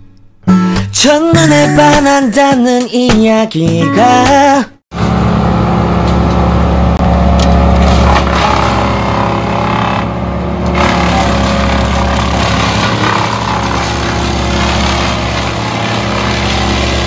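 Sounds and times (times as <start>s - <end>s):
wood chipper chipping branches: 5.0s - 17.0s.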